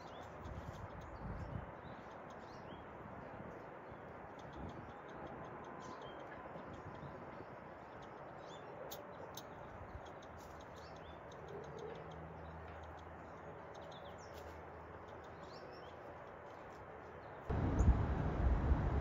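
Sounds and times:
bird chirps and clicks: 0:00.0 - 0:18.0
outdoor background hiss: 0:12.2 - 0:19.0
low hum: 0:17.5 - 0:19.0.

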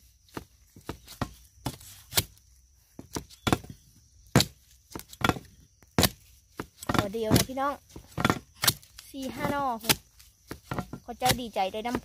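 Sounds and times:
metal blade chopping into soil: 0:01.0 - 0:02.4, 0:04.3 - 0:12.0.

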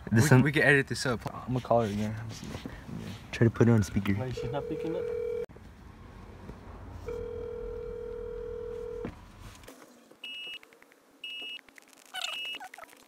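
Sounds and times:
phone ringback tone: 0:04.3 - 0:05.5, 0:07.1 - 0:09.1.

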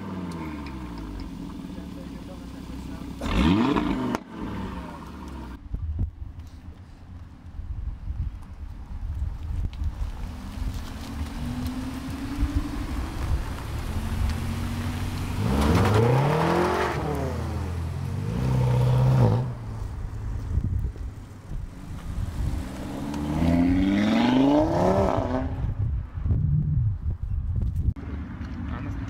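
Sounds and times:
car engines revving: 0:00.0 - 0:05.6, 0:10.0 - 0:25.8.

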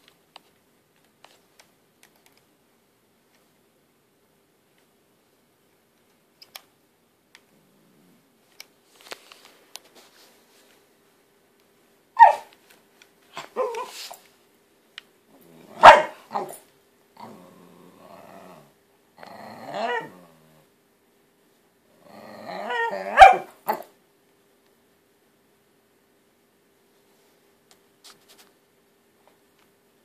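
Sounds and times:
dog growling: 0:07.5 - 0:08.3, 0:15.3 - 0:16.6, 0:17.2 - 0:20.7, 0:21.9 - 0:23.9
dog barking: 0:12.2 - 0:12.5, 0:13.4 - 0:14.0, 0:15.7 - 0:16.6, 0:22.7 - 0:23.9.

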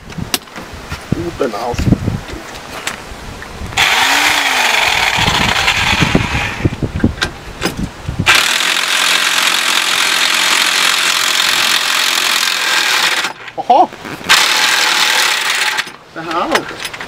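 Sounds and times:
electric impact wrench whirring: 0:03.8 - 0:06.8, 0:08.2 - 0:13.4, 0:14.3 - 0:16.0.

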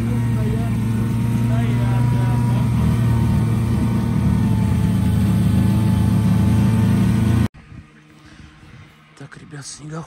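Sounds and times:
snowmobile engine running: 0:00.0 - 0:07.5.

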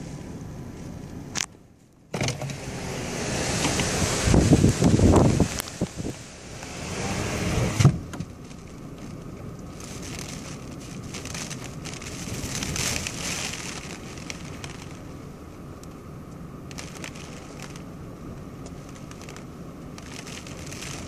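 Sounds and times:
rising rush: 0:02.6 - 0:07.8
raindrops ticking on car: 0:03.6 - 0:07.4, 0:08.0 - 0:21.0.

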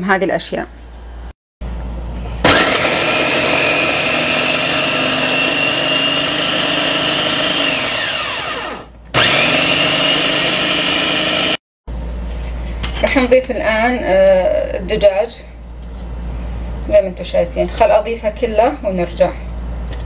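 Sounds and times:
electric food chopper running: 0:02.4 - 0:11.6.

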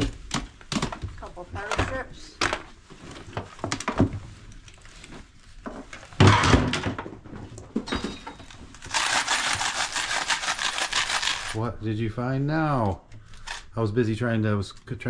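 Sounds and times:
items knocking: 0:00.0 - 0:04.4, 0:05.6 - 0:11.6.

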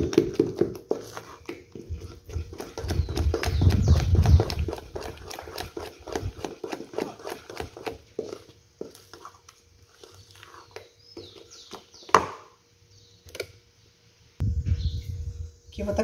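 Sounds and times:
soft stirring and tapping: 0:00.0 - 0:12.1.

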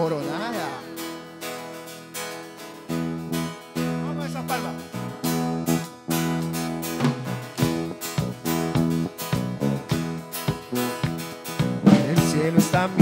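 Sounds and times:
acoustic guitar strumming: 0:00.0 - 0:13.0
electric bass: 0:02.8 - 0:13.0.

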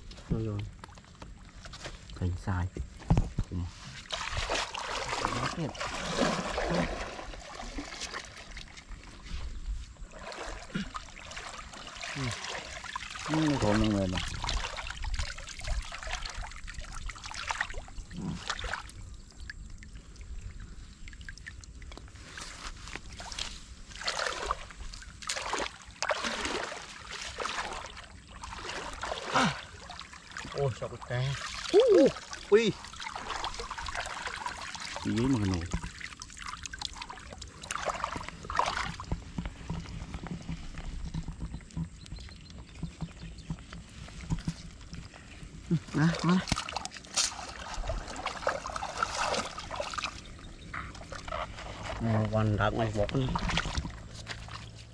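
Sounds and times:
water splashing and pouring: 0:03.1 - 0:41.4, 0:44.0 - 0:54.9
small knocks and scrapes: 0:38.7 - 0:45.3.

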